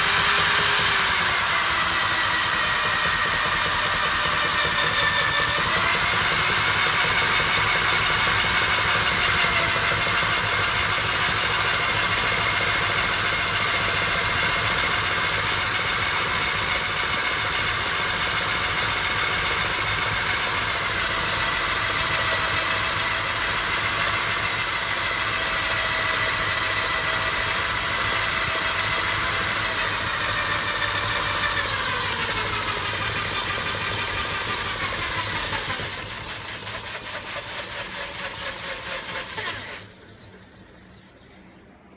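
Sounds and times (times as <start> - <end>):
electric drill whining: 0.0 - 41.2
short high chirps: 39.6 - 41.6.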